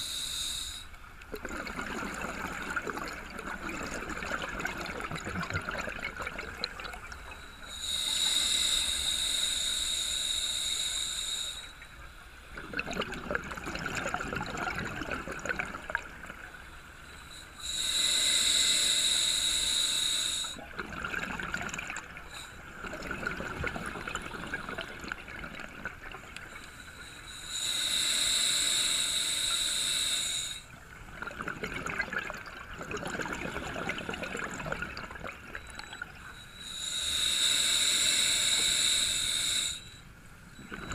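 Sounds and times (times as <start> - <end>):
regulator inhale hiss: 0.0 - 1.1, 7.2 - 12.2, 16.5 - 20.6, 22.2 - 22.8, 26.4 - 30.8, 35.6 - 40.9
bubbling exhale: 0.0 - 11.7, 12.6 - 16.4, 17.3 - 39.9, 40.6 - 40.9.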